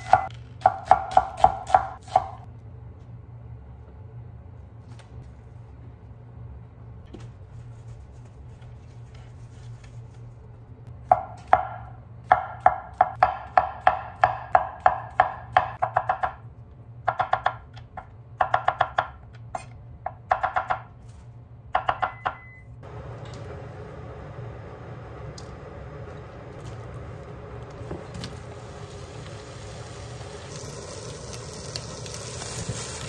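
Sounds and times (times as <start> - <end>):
knife chopping on wooden board: 0.0 - 2.4
low hum: 22.5 - 33.0.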